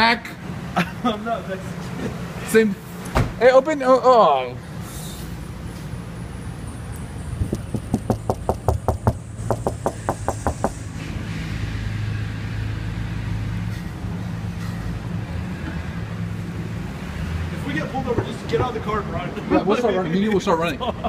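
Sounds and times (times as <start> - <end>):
vehicle engine hum: 4.6 - 19.5
knocks on car window: 7.4 - 10.8.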